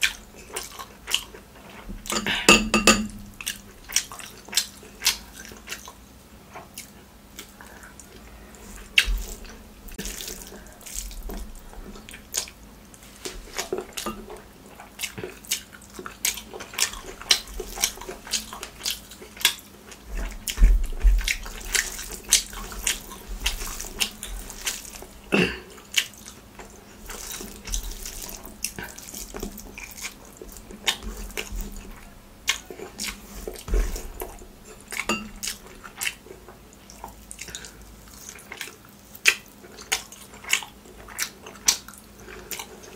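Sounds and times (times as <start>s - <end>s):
wet chewing and lip smacks: 3.4s - 12.6s, 13.2s - 25.2s, 25.8s - 42.9s
squelch of rice being mixed: 6.6s - 42.9s.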